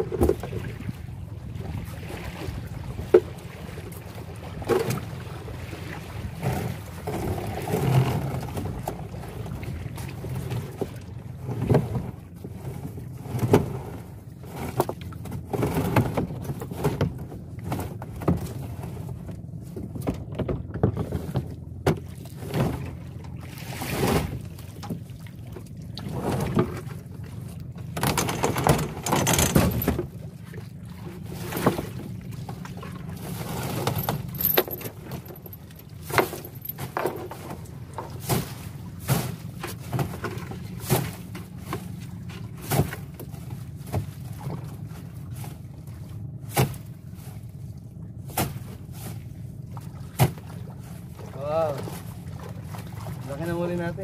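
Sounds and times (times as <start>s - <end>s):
wet rope hauled splashing: 22.1s - 27.0s, 48.3s - 53.8s.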